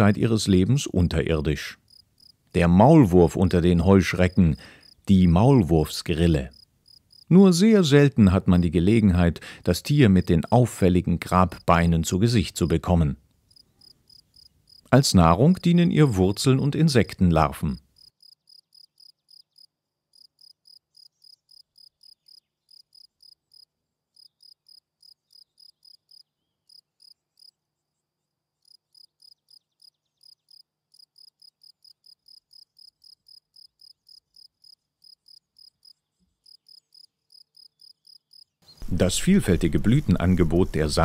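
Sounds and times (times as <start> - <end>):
cricket chirping: 1.8 - 2.4, 4.3 - 5.0, 6.5 - 7.3, 13.5 - 14.9, 17.9 - 27.6, 28.6 - 38.8.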